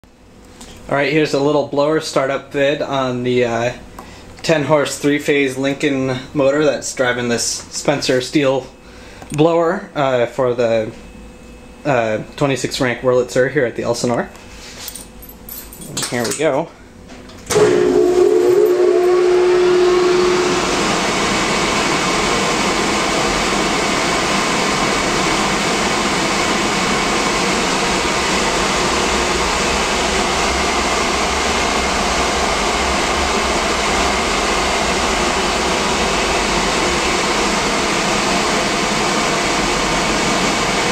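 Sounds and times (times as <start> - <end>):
electric motor hum and whine: 0.1 - 40.9
blower rushing air: 17.5 - 40.9.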